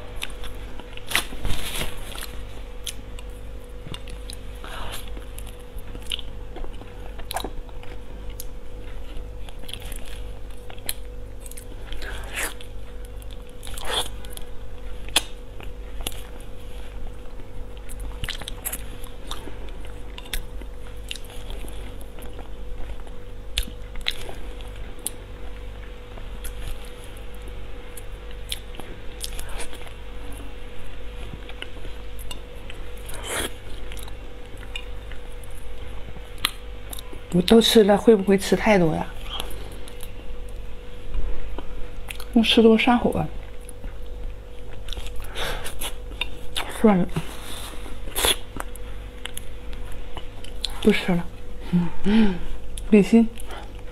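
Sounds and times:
steady low hum: 0.0 - 53.9
person chewing: 2.1 - 30.5, 31.2 - 37.2, 41.5 - 42.4, 43.5 - 51.0.

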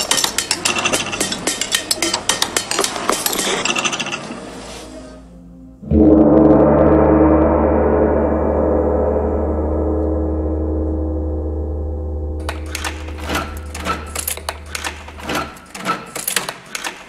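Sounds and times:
gong ringing: 5.8 - 15.8.

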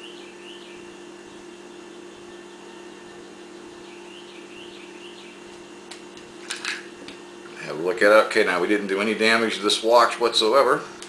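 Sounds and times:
faint bird chirps: 0.0 - 5.5
steady low hum: 0.0 - 11.0.

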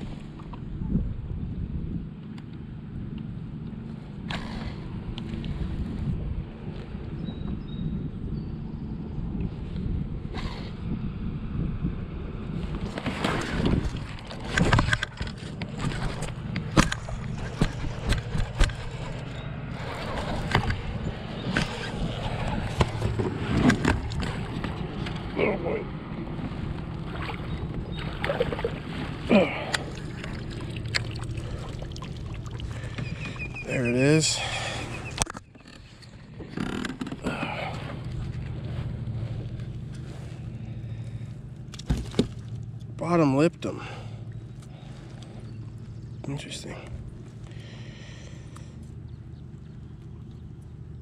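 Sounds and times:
trolling motor hum: 0.0 - 51.0
low rumble: 2.9 - 43.3
water splashing: 26.6 - 35.3.

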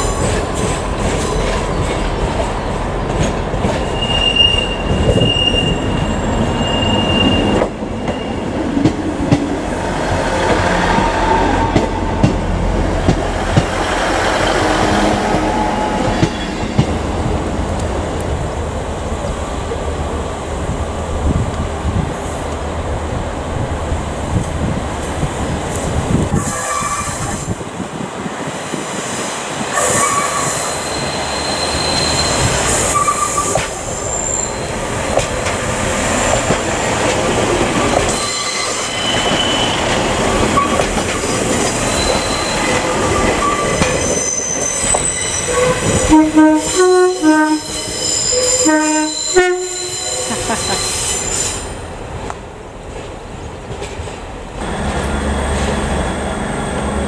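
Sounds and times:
train passing: 0.0 - 57.0
wheels squealing on rails: 3.6 - 8.9, 13.8 - 16.9, 26.3 - 27.6, 28.9 - 51.9, 54.6 - 57.0
two-tone train horn: 45.5 - 50.3.

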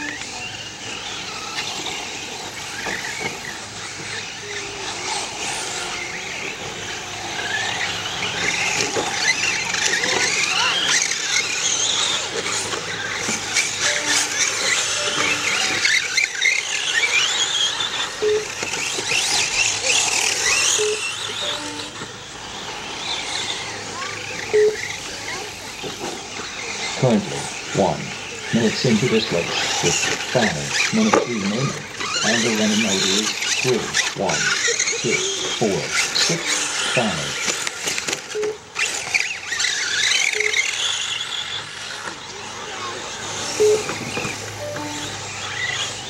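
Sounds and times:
radio-controlled car motors whining: 0.0 - 46.0
short beeps: 13.8 - 15.7, 18.2 - 18.5, 20.8 - 22.0, 24.5 - 24.9, 38.4 - 38.6, 40.4 - 40.6, 43.6 - 44.0, 44.6 - 45.8.

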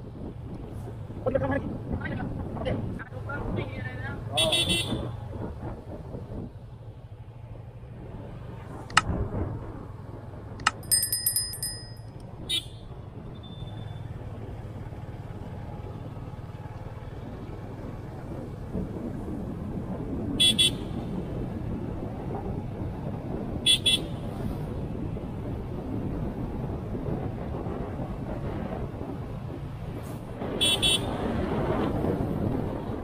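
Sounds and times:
road and wind noise: 0.0 - 33.0
short high-pitched ringing: 10.7 - 12.0.

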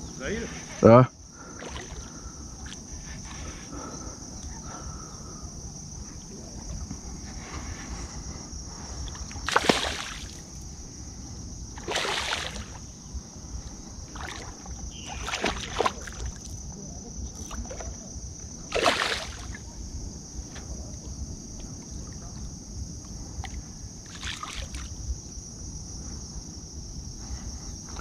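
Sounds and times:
fish splashing in water: 9.4 - 10.4, 11.8 - 12.8, 14.1 - 16.4, 18.7 - 19.6, 24.1 - 24.9.

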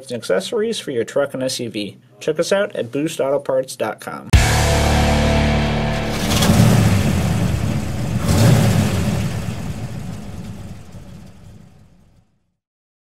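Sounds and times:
deep rumbling hit: 4.4 - 12.1.

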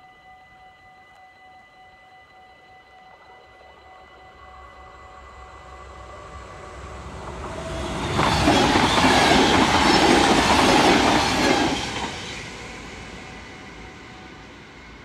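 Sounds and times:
electric train passing: 0.0 - 15.0
wheels rumbling on track: 6.0 - 15.0.

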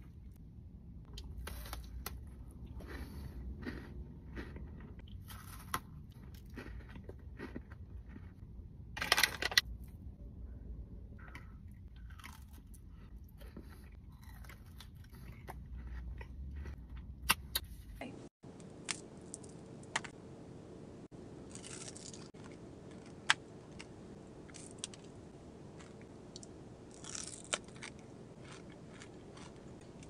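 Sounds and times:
crunching and chewing: 1.1 - 8.4, 11.2 - 17.6, 21.4 - 30.0.

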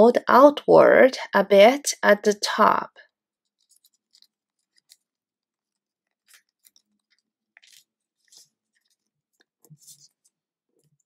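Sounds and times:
paper being folded: 3.4 - 11.0.

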